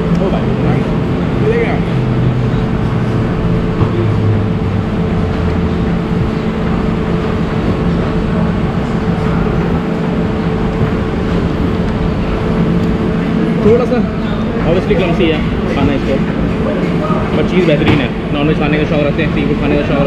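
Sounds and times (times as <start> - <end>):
low rumble: 0.0 - 13.6
constant mechanical hum: 0.0 - 20.0.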